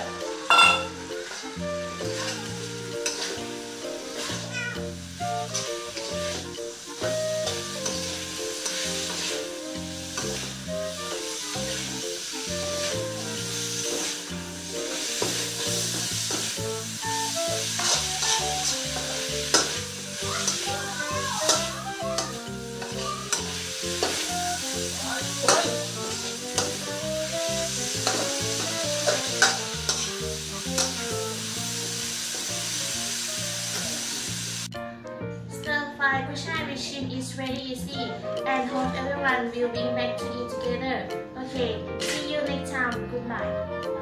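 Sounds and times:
food sizzling in a wok: 0.0s - 34.8s
metal spatula scraping a pan: 0.4s - 4.6s, 5.2s - 32.8s.

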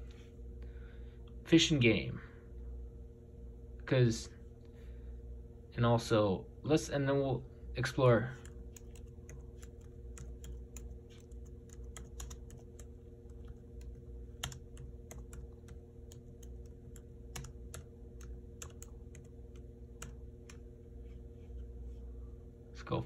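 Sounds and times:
steady low hum: 0.0s - 23.0s
laptop keyboard typing: 8.4s - 20.7s.

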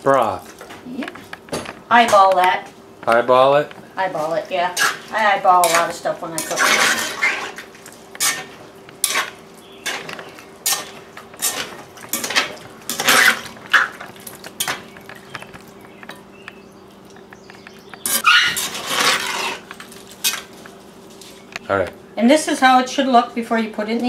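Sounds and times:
spoon scraping a pot: 4.7s - 14.9s, 18.1s - 20.5s.

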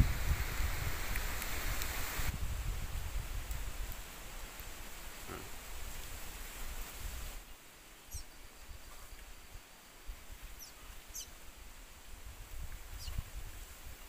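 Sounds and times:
small bird chirping: 8.1s - 9.2s, 10.5s - 11.4s, 12.9s - 13.2s.

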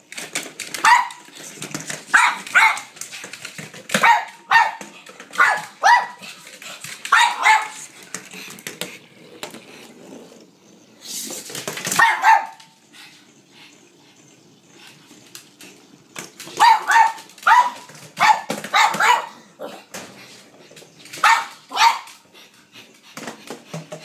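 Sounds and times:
dog barking: 0.8s - 1.2s, 2.1s - 2.9s, 4.0s - 4.8s, 5.4s - 6.2s, 7.1s - 7.8s, 12.0s - 12.7s, 16.6s - 19.8s, 21.2s - 22.1s.

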